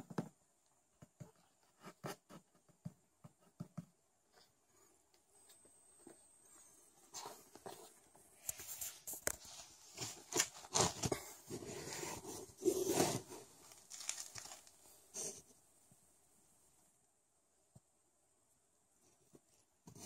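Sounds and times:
fabric rustling on cardboard: 6.1s - 15.5s.

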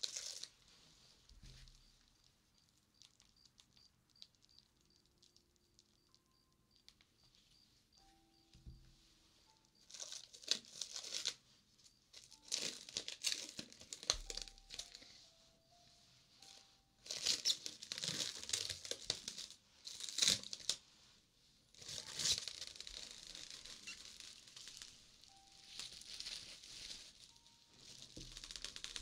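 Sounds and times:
cling film crinkling and tearing: 0.0s - 0.6s, 9.8s - 11.4s, 12.1s - 15.3s, 16.4s - 20.8s, 21.7s - 29.0s.

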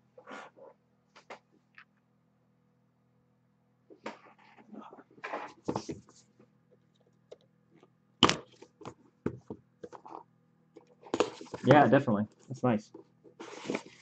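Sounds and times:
cardboard boxes rustling: 11.1s - 11.9s, 13.4s - 14.0s.

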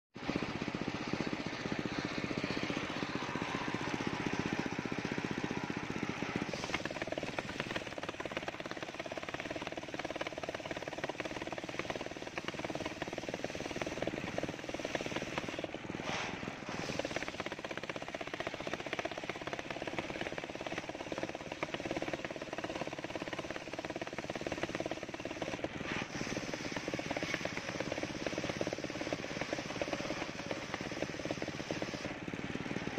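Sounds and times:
circular saw ripping timber: 11.4s - 17.7s, 24.0s - 32.1s.

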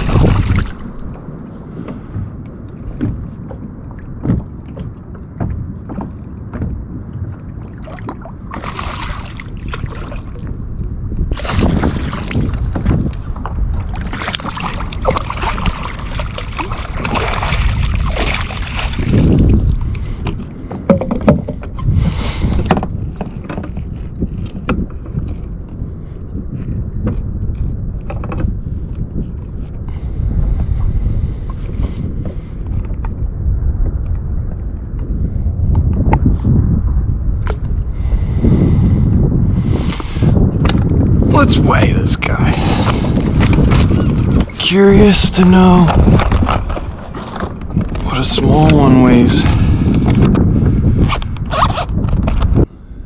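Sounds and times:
water splashing against kayak: 0.0s - 25.8s, 39.9s - 50.4s
knocks and rubbing on hull: 2.9s - 10.5s, 11.3s - 25.4s.

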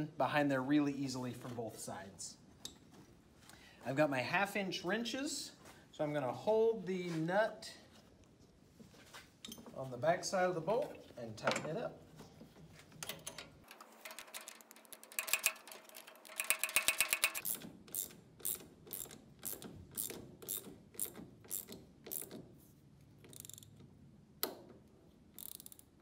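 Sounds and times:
ratchet wrench clicking: 14.0s - 22.4s, 23.2s - 23.9s, 25.4s - 26.0s.

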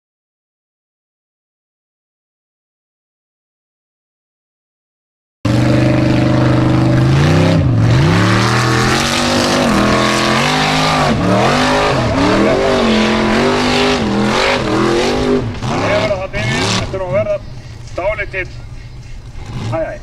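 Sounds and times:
buggy engine revving: 5.5s - 20.0s.

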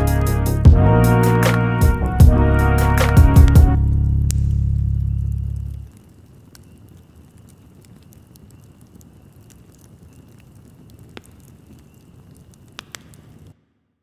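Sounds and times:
fire crackling: 0.0s - 14.0s
sharp pops: 3.0s - 6.7s, 10.9s - 13.7s.

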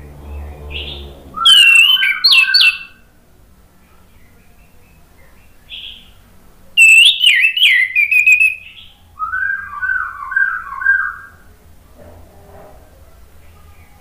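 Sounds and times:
thrush singing: 0.0s - 3.2s.

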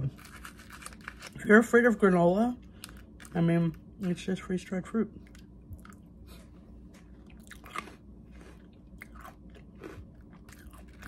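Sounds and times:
person chewing crunchy food: 0.0s - 1.4s, 5.2s - 11.0s.

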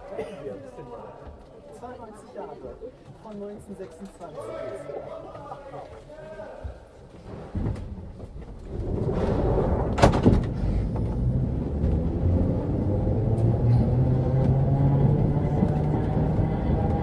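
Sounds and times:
train motor car rumbling: 8.8s - 17.0s.

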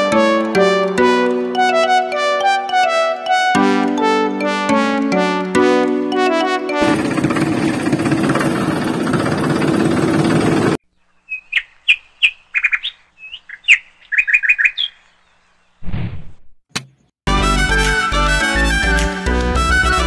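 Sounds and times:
small water pump running: 6.8s - 10.8s
bird chirping: 10.8s - 15.9s.

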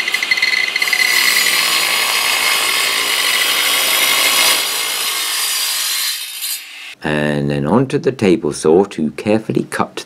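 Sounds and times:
mitre saw cutting wood: 0.0s - 7.0s.

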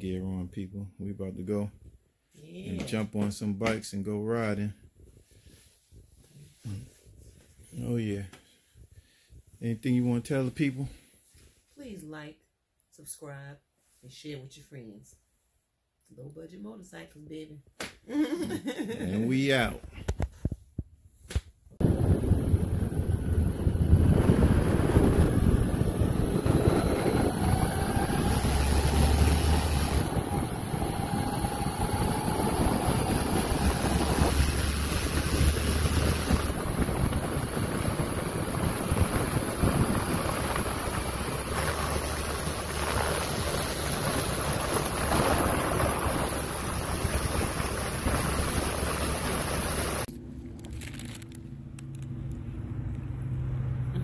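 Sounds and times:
motorcycle cruising: 21.8s - 50.1s
wind rushing over microphone: 21.8s - 50.1s.

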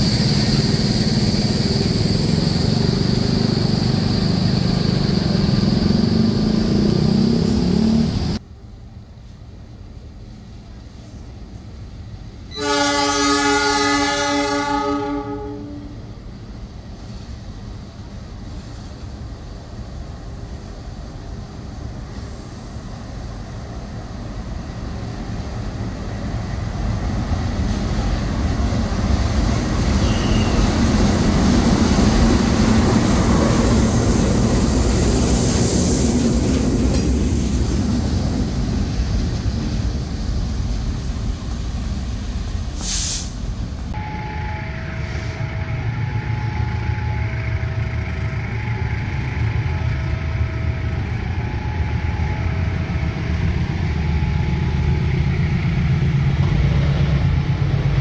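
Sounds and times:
train passing rumble: 0.0s - 58.0s
locomotive horn blast: 12.5s - 16.0s, 30.0s - 30.6s, 44.0s - 47.8s.

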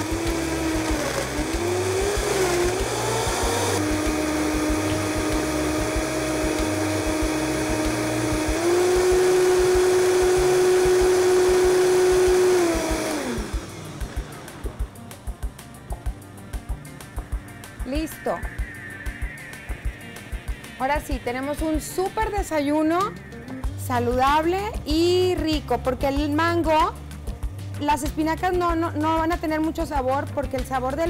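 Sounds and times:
blender running: 0.0s - 15.0s.

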